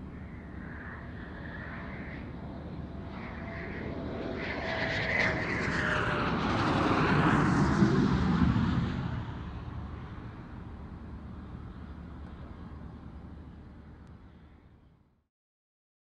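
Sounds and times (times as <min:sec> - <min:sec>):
jet passing by: 0:00.0 - 0:12.8.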